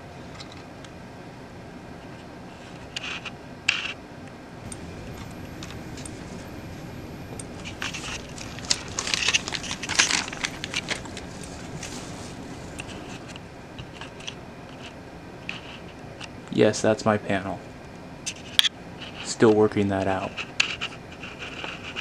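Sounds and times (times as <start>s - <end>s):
plastic crackling and scraping: 7.3s - 16.0s.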